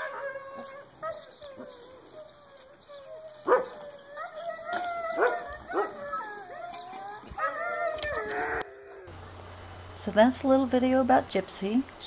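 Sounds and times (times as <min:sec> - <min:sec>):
dogs yipping and barking: 0:00.0 - 0:09.1
huskies howling: 0:00.0 - 0:09.2.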